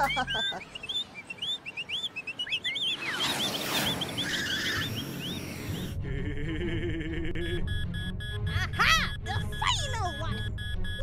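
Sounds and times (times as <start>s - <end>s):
birds chirping: 0.0s - 6.0s.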